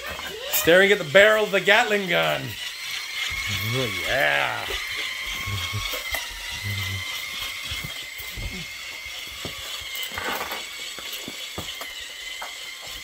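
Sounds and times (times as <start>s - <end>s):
toy blaster mechanism clicking: 1.8s - 13.0s
steady high-pitched whine: 2.2s - 12.6s.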